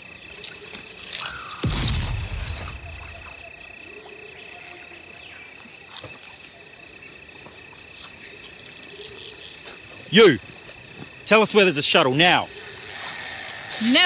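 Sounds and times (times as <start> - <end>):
insects droning: 0.0 - 14.0
heavy thud with rumble: 1.6 - 3.3.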